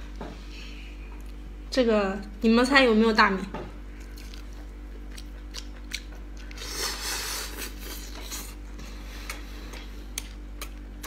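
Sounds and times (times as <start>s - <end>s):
chewing: 3.9s - 11.0s.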